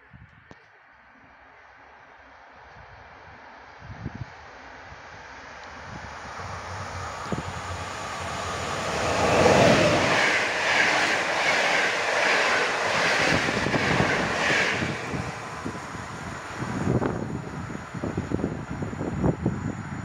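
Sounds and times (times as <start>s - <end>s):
electric locomotive passing: 4.7s - 20.0s
train wheels clattering over rails: 6.3s - 17.0s.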